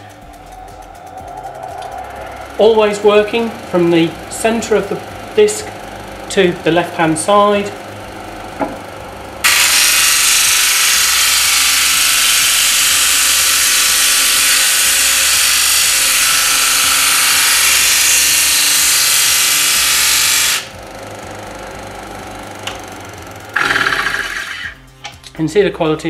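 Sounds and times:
low motor hum: 0.0s - 9.8s, 20.7s - 25.1s
disc sander sanding wood: 9.0s - 24.8s.

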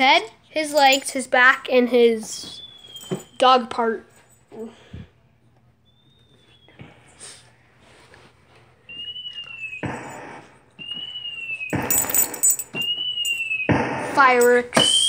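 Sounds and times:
keyboard fireworks sound effect: 9.6s - 15.0s.

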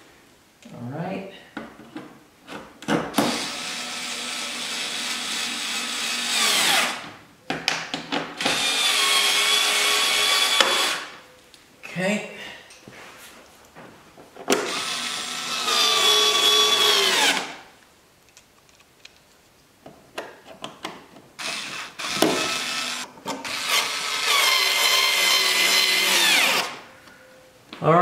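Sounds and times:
cordless drill driving screws: 3.2s - 7.0s, 8.4s - 11.1s, 14.5s - 17.6s, 21.4s - 26.8s.

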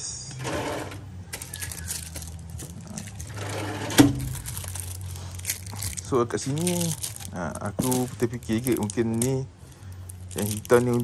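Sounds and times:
low steady hum: 0.0s - 11.0s
rattling and clattering rummaging: 1.3s - 9.4s.

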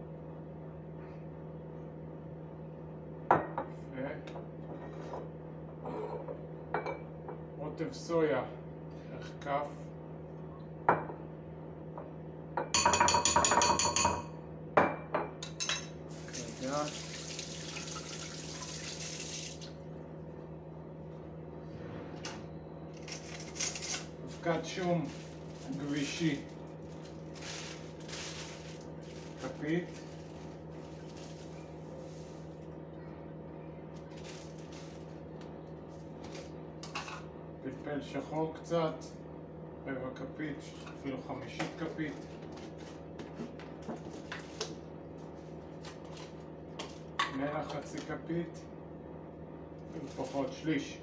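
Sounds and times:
low electrical appliance hum: 0.0s - 51.0s
spoon clinking against ceramic bowl: 12.8s - 14.3s.

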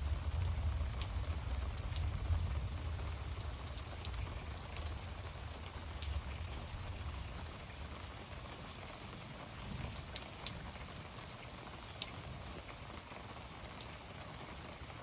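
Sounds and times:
rain hissing: 0.0s - 15.0s.

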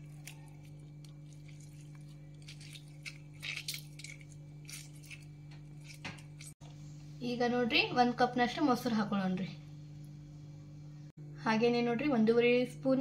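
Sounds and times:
lemon squelches and drips: 0.0s - 6.6s
low hum: 0.0s - 13.0s.

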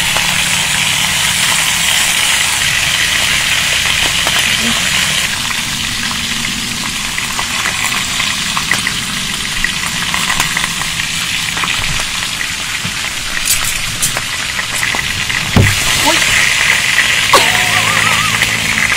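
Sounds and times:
food sizzling on grill pan: 0.0s - 18.9s
small pops and crackles: 12.8s - 16.8s.

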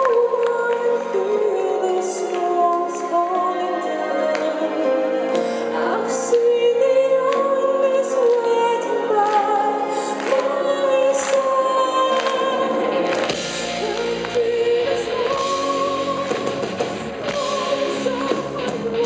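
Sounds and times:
metal band playing live: 12.8s - 19.0s.

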